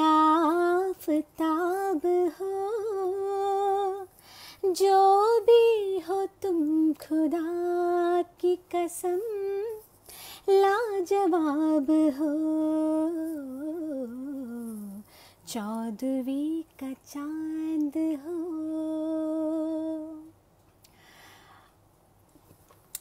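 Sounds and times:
woman singing unaccompanied: 0:00.0 - 0:20.4.

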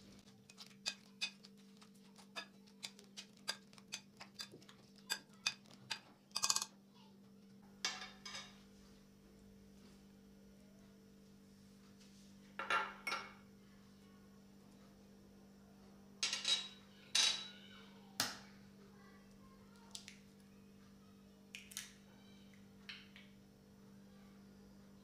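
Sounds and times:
faint steady hum: 0:00.0 - 0:25.0
glass dishes clinking on a bowl: 0:12.6 - 0:13.4, 0:16.2 - 0:17.6.

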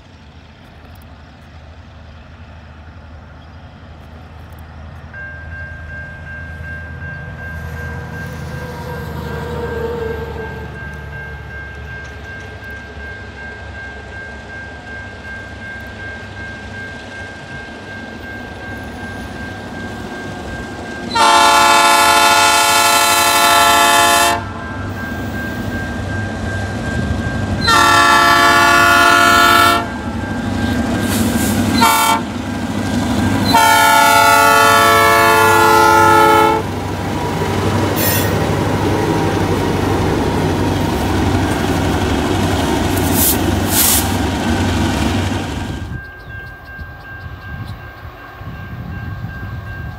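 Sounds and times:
locomotives rumbling past: 0:16.2 - 0:49.9
locomotive air horn: 0:21.1 - 0:24.7, 0:27.6 - 0:30.0, 0:31.1 - 0:32.4, 0:33.4 - 0:36.8, 0:38.0 - 0:38.5.

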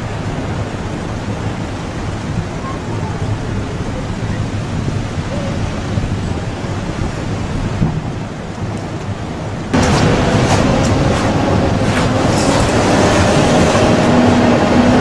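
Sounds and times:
storm surf roar: 0:00.0 - 0:15.0
wind: 0:00.0 - 0:15.0
deep rumble: 0:03.1 - 0:15.0.

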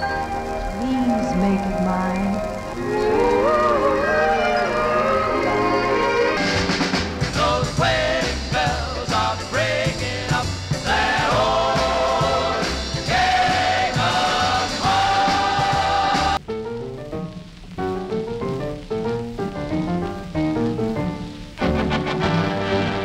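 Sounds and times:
song with singing and band: 0:03.1 - 0:16.4.

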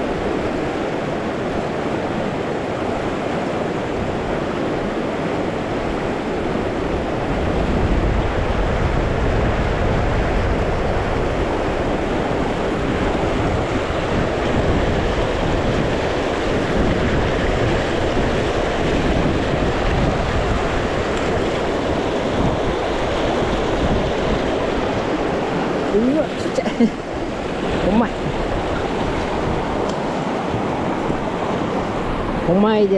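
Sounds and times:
river water rushing: 0:00.0 - 0:32.9
wind buffeting microphone: 0:00.0 - 0:32.9.

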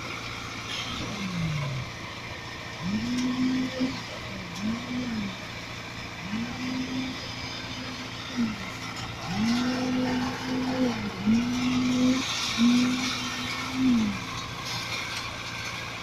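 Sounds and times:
concrete pump engine running: 0:00.0 - 0:16.0.

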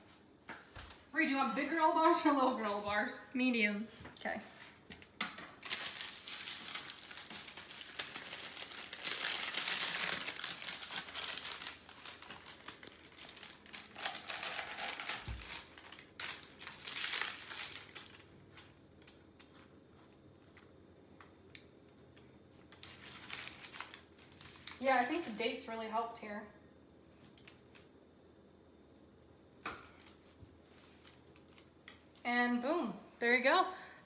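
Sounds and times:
parchment paper crinkling: 0:05.6 - 0:19.6, 0:22.7 - 0:25.5.

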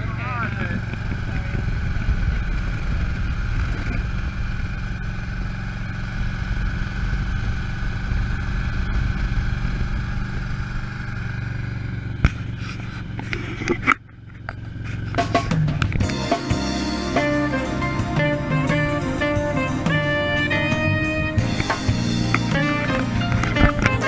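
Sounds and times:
wind and road noise: 0:00.0 - 0:17.5, 0:18.4 - 0:24.0
motorcycle engine running: 0:00.0 - 0:24.0.

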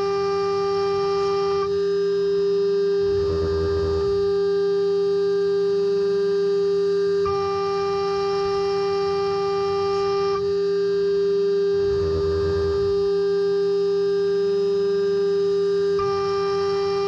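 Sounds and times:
router spindle high whine: 0:00.0 - 0:17.0
low rumble: 0:03.0 - 0:04.3, 0:11.8 - 0:13.0.

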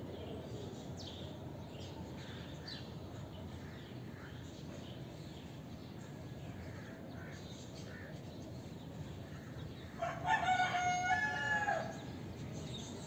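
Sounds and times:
rooster crowing: 0:10.0 - 0:12.0.

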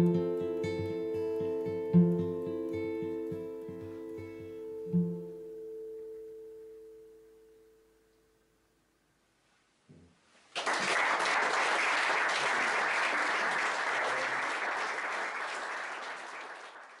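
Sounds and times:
acoustic guitar chord ringing: 0:00.0 - 0:08.9
audience applause: 0:10.5 - 0:17.0.

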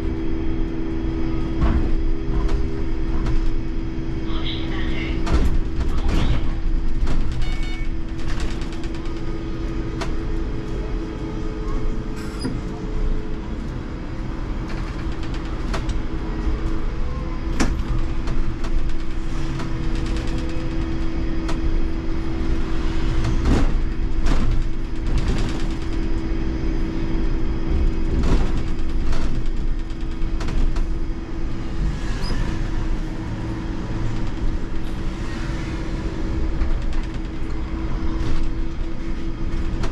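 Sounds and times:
low road rumble: 0:00.0 - 0:39.9
knocks and rattles: 0:05.2 - 0:10.4, 0:23.1 - 0:26.3, 0:27.6 - 0:31.2.

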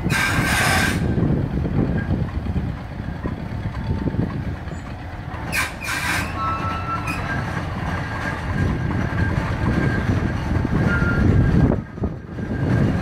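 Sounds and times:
steam shovel machinery rumbling: 0:00.0 - 0:13.0
sharp steam hisses: 0:00.1 - 0:01.1
high metallic squeals: 0:05.5 - 0:13.0.

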